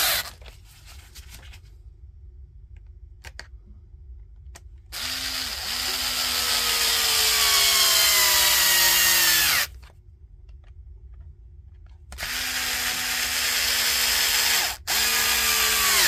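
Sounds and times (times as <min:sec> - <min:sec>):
drill motor driving screw: 0:05.0 - 0:09.7, 0:12.2 - 0:16.0.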